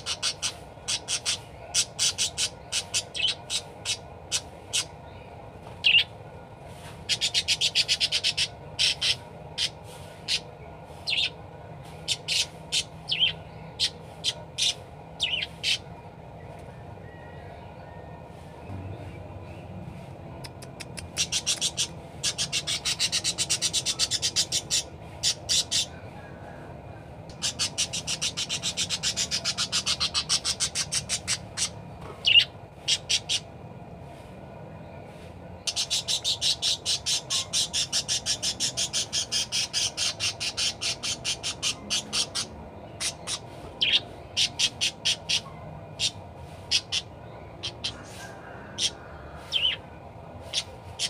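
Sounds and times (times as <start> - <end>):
budgerigar chattering: 0.0 - 5.0, 5.8 - 6.1, 7.1 - 10.5, 11.1 - 11.4, 12.0 - 15.9, 20.4 - 26.0, 27.3 - 33.5, 35.6 - 49.8, 50.4 - 51.0
sharp bird calls: 0.0 - 6.1, 7.1 - 11.4, 12.0 - 16.0, 20.3 - 26.0, 27.3 - 33.5, 35.6 - 51.0.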